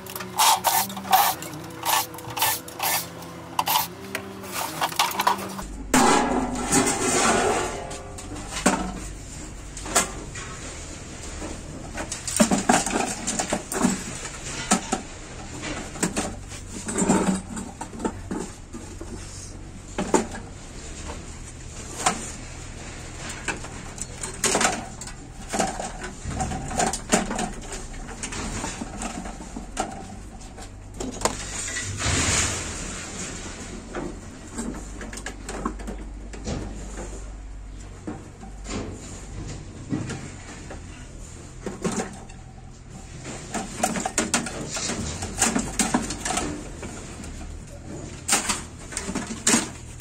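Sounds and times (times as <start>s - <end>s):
metal case clanks and scrapes: 0.0s - 10.6s.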